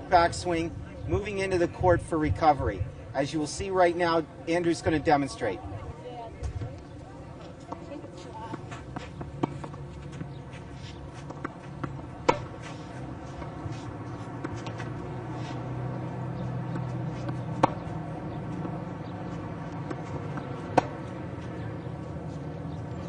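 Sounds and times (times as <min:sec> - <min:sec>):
racket hitting tennis ball: 0:08.5 - 0:22.8.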